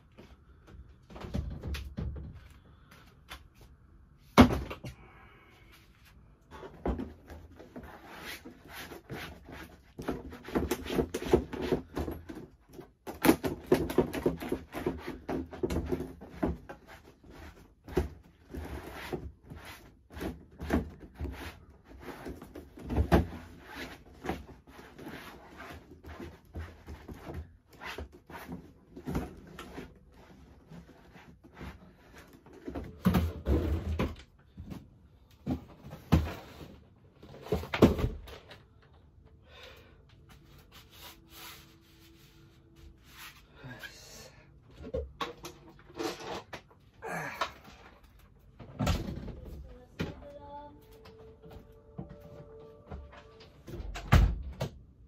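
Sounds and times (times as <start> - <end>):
household items handled and wiped: 40.2 - 44.3.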